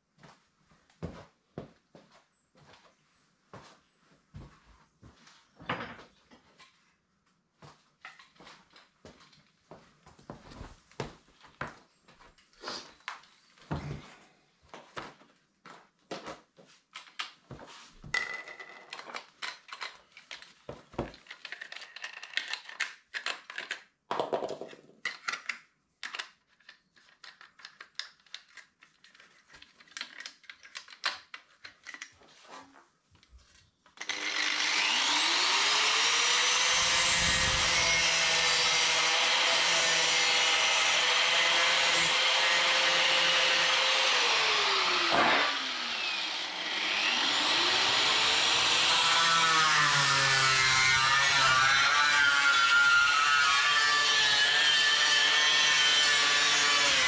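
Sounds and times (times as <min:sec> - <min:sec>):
angle grinder grinding steel: 0:34.0 - 0:57.0.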